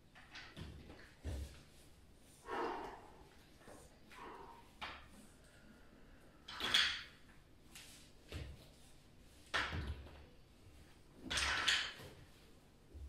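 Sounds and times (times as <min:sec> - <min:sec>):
soft thumps of exercise movements: 0:00.5 - 0:02.0.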